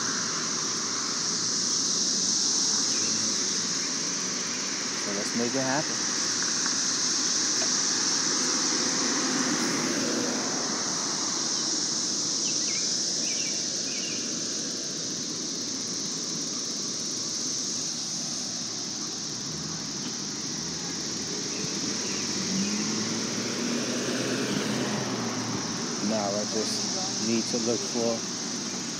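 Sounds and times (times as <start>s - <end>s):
bicycle road noise: 0.0s - 28.9s
car traffic: 0.0s - 28.9s.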